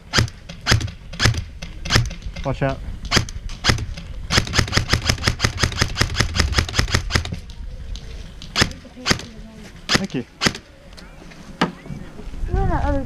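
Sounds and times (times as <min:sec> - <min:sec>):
airsoft rifle firing clicks: 0:00.0 - 0:02.4, 0:03.0 - 0:07.4, 0:08.4 - 0:10.7.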